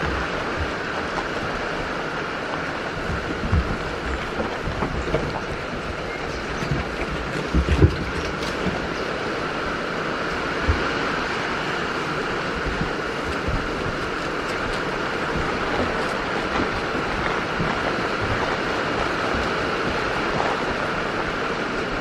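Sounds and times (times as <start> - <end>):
rain falling: 0.0 - 22.0
soft low thumps: 3.0 - 9.1, 12.3 - 20.9.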